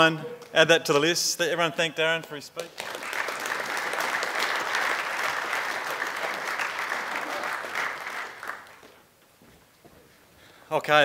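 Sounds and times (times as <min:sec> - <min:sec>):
audience applauding: 0:02.6 - 0:09.0.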